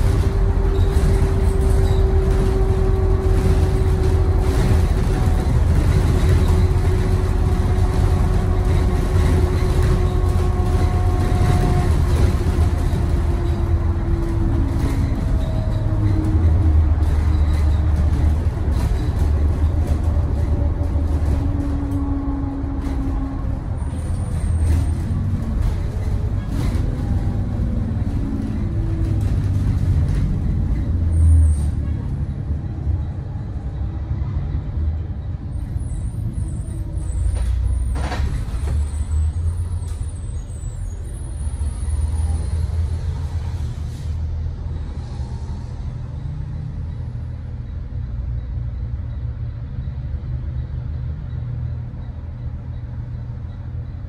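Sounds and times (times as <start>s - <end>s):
bus engine and road rumble: 0.0s - 54.0s.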